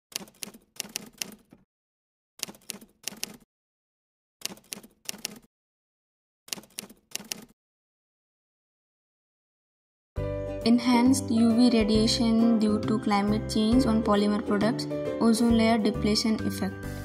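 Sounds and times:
keyboard typing clicks: 0.1 - 1.6, 2.4 - 3.4, 4.4 - 5.5, 6.5 - 7.5.

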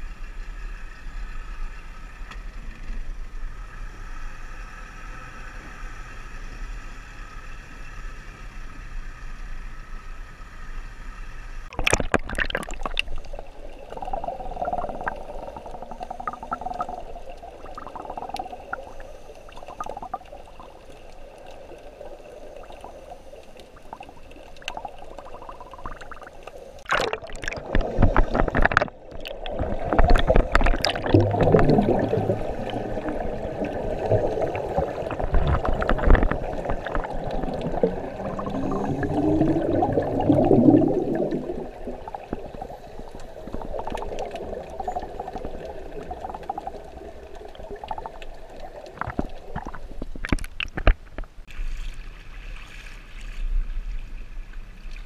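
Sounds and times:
sharp splash: 11.7 - 13.2, 26.8 - 32.2
air bubbles rushing: 11.7 - 20.8, 23.6 - 51.2
water sloshing and gurgling: 11.7 - 55.0.

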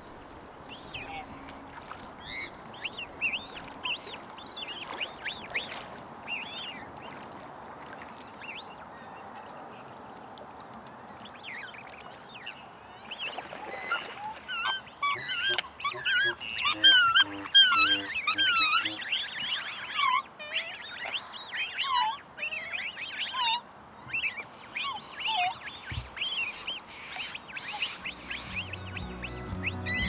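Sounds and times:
light wash of water: 0.0 - 29.8
swans calling: 13.4 - 30.0.

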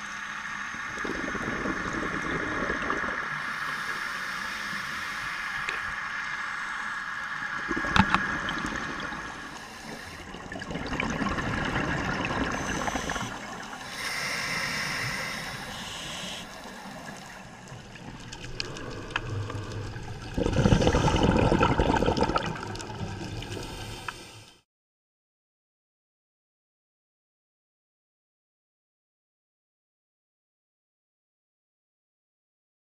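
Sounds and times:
scuba regulator bubbling exhaust: 0.9 - 6.3, 7.5 - 24.5
diver breathing through regulator: 3.3 - 6.1, 9.4 - 10.4, 12.4 - 17.7, 23.5 - 24.6.

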